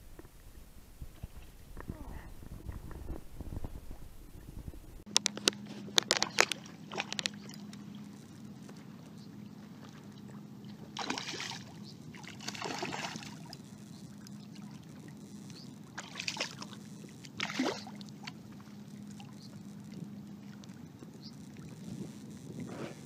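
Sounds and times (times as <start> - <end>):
low water noise: 0.0 - 23.0
fish thrashing and splashing: 5.1 - 7.9, 10.8 - 13.6, 15.9 - 18.4.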